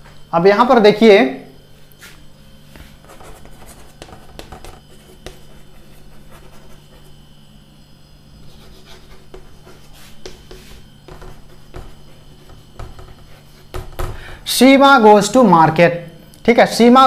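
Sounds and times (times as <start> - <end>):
faint steady hum: 0.0 - 17.0
chalk tapping and scratching: 2.0 - 7.2, 8.4 - 14.2.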